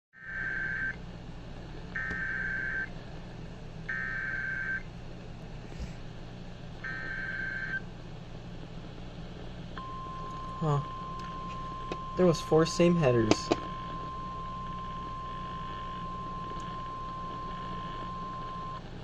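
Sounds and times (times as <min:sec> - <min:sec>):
emergency alert data bursts: 0:00.2 - 0:01.0, 0:02.0 - 0:02.9, 0:03.9 - 0:04.8, 0:06.8 - 0:07.8, 0:09.8 - 0:18.8
radio speaker hum: 0:00.2 - 0:19.0
steady attention tone: 0:09.8 - 0:18.8.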